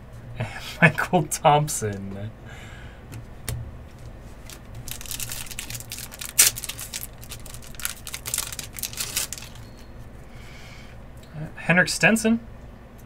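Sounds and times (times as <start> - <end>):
foil wrapper crinkling: 4.0 - 9.8
wrapper tearing and crackling: 4.4 - 9.6.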